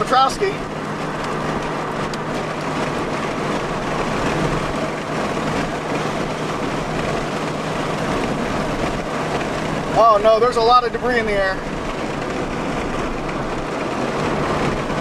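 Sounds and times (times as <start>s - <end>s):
low engine hum: 0.0s - 15.0s
road and wind noise: 0.0s - 15.0s.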